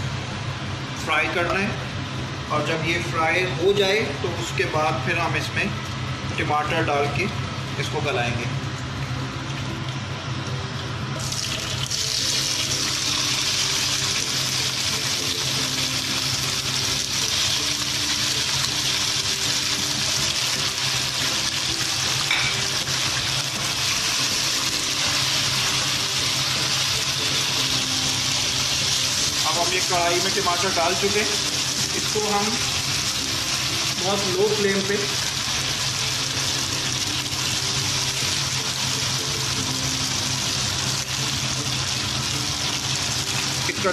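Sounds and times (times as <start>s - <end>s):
tomatoes sizzling in hot oil: 8.8s - 43.9s.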